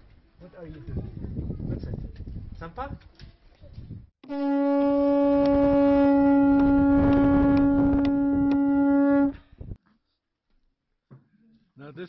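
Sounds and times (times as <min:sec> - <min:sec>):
conch-shell trumpet note: 0:04.2 - 0:09.7.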